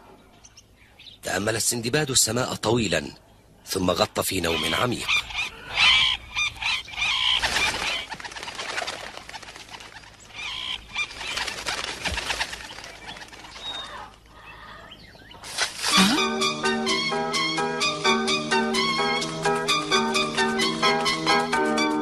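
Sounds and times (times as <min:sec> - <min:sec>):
birds chirping: 0:00.0 - 0:22.0
wing flaps: 0:07.2 - 0:14.3, 0:15.4 - 0:16.2.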